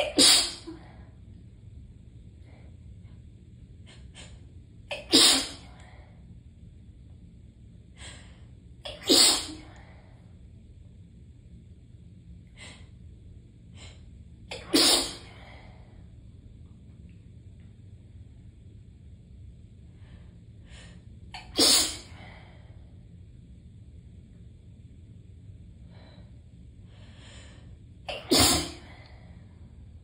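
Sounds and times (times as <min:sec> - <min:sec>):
person sneezing: 0:00.0 - 0:00.8, 0:04.9 - 0:05.7, 0:08.9 - 0:09.8, 0:14.5 - 0:15.4, 0:21.4 - 0:22.2, 0:28.1 - 0:29.0.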